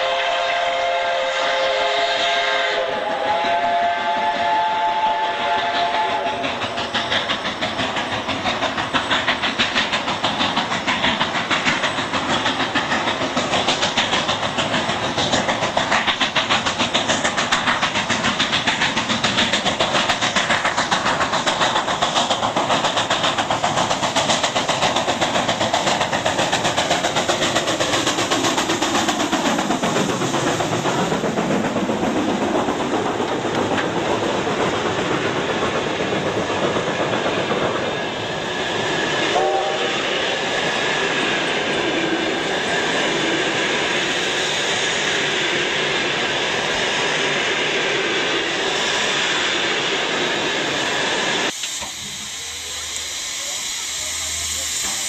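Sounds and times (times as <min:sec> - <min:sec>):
steam hiss: 0:00.0 - 0:55.0
steam locomotive chuffing: 0:00.0 - 0:55.0
wheels clicking over rail joints: 0:06.3 - 0:38.0.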